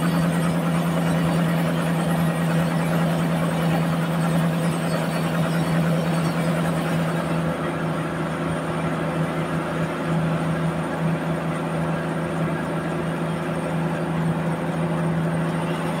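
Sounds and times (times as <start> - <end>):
band saw motor drone: 0.0 - 7.8, 14.0 - 16.0.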